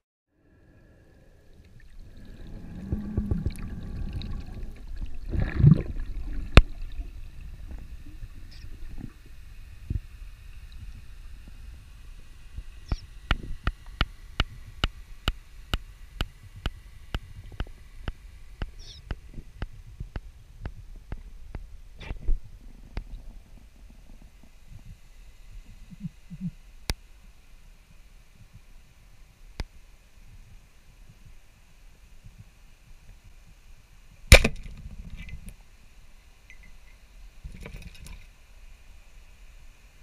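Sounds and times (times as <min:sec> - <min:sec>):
water rushing and bubbling underwater: 0:00.6 - 0:26.6.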